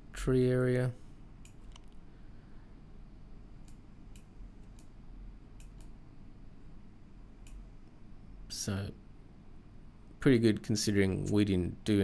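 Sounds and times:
faint low hum: 0.0 - 12.0
computer mouse clicks: 1.4 - 2.0, 3.6 - 5.0, 5.6 - 6.0, 7.4 - 7.7.

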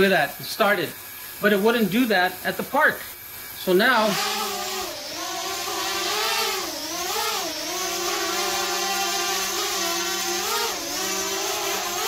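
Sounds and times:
drone propellers buzzing whine: 3.9 - 12.0.

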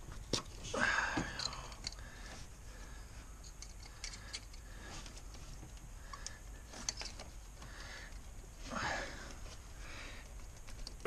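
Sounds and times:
plastic connectors clicking and rattling: 1.2 - 2.0, 3.4 - 4.7, 10.2 - 11.0.

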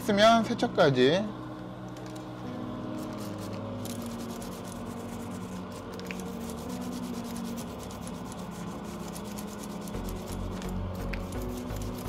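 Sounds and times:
brush scrubbing circuit board: 3.0 - 12.0.

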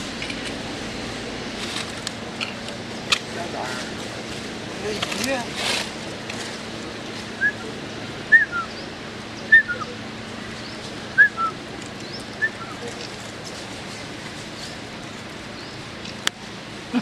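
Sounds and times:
bird chirping: 7.4 - 13.1.

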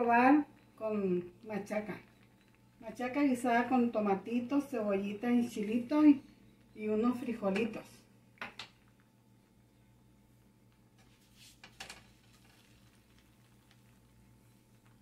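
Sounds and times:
faint steady hum: 0.0 - 15.0
tortilla handled on griddle: 11.0 - 13.8.

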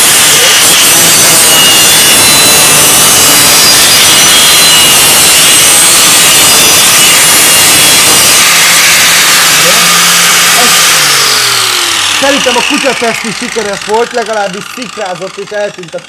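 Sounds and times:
angle grinder cutting: 0.0 - 16.0.

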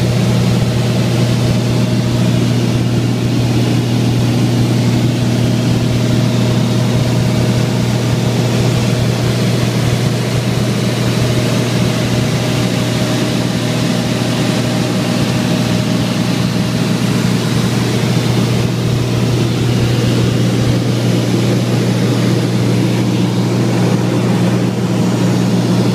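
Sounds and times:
aircraft engine and propeller drone: 0.0 - 25.9.

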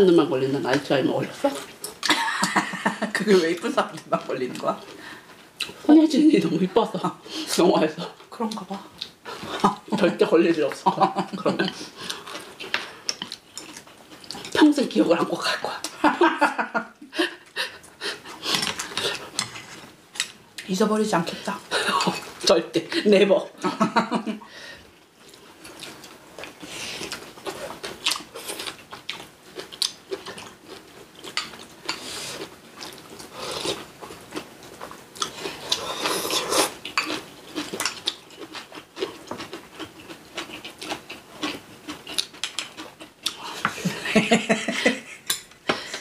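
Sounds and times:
chewing food: 11.5 - 14.6, 25.2 - 43.9.

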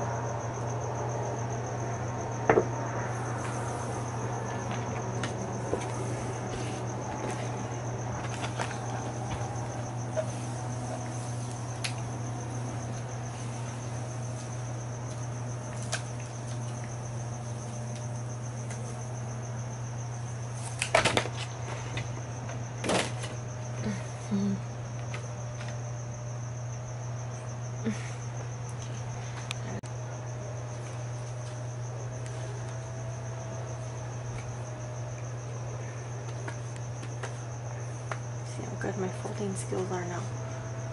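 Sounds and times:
low hum: 0.0 - 20.9.

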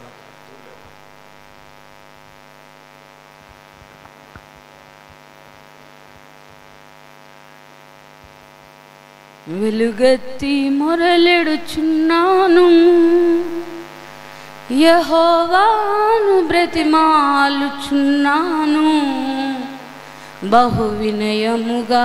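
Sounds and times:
electrical mains hum: 0.0 - 22.0
woman singing: 9.5 - 13.9, 14.7 - 22.0.

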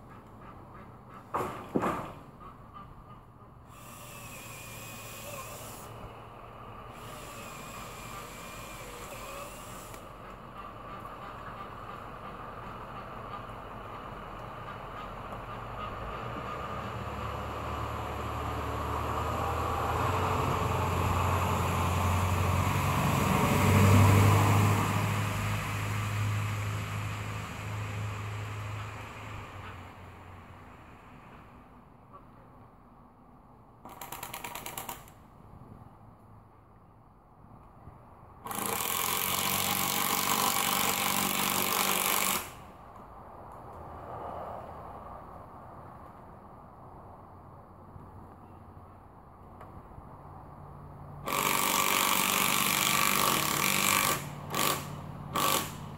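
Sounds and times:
power drill drilling into wood: 3.7 - 6.0, 6.9 - 10.0, 38.5 - 42.6, 51.3 - 55.8
motor vehicle passing by: 10.0 - 32.2, 43.1 - 48.4.

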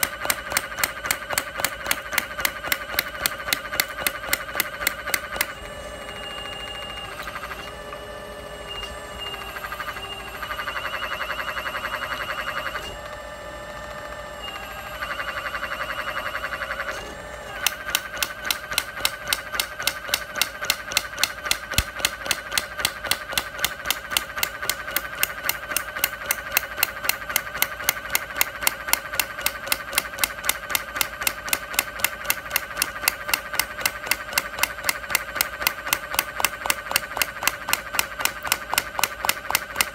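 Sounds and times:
hydraulic breaker hammering brick: 0.0 - 7.4, 16.6 - 39.9
machine whine: 0.0 - 39.9.

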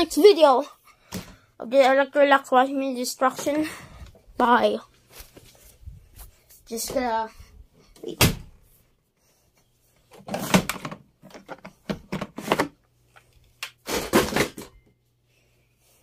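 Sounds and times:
plastic drawer sliding and clattering: 10.1 - 12.8.

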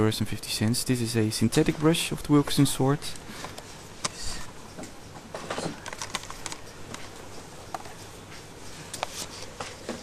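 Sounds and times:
steady background hiss: 0.0 - 10.0
camera handling clicks and rustles: 5.8 - 7.1.

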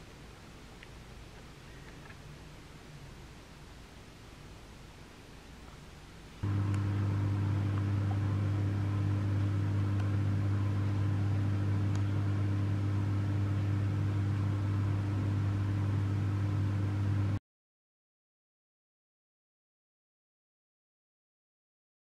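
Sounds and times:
low mechanical hum: 0.0 - 17.4.

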